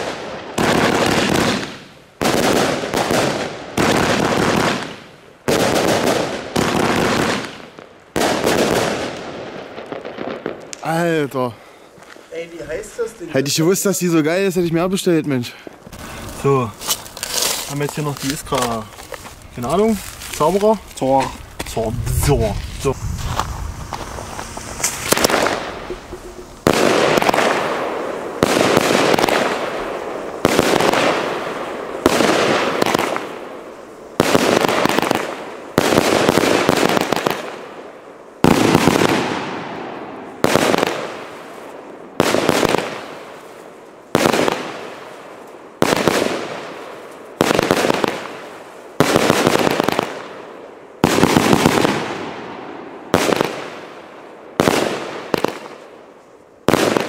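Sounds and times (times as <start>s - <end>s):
firework bangs: 0.0s - 11.2s, 15.7s - 55.9s, 56.6s - 57.0s
hiss of burning stars: 15.9s - 34.2s.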